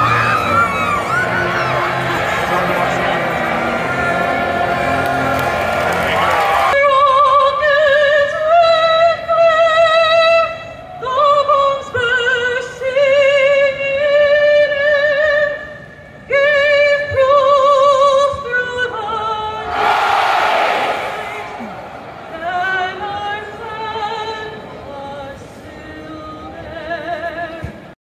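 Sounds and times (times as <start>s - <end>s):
crowd cheering: 0.0s - 6.8s, 19.6s - 23.7s
woman singing opera: 6.8s - 19.6s, 22.3s - 27.8s.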